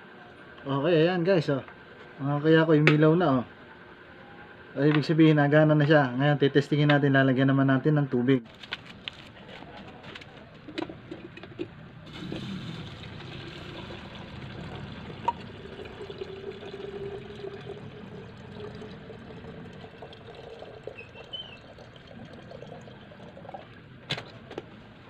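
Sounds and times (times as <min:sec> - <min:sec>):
water filling a kettle: 0:12.1 - 0:23.8.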